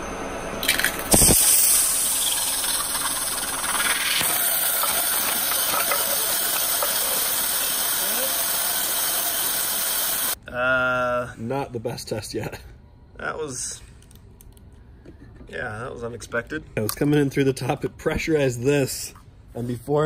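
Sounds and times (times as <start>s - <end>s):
machine hum: 0.0s - 10.4s
water jet hissing: 1.0s - 10.4s.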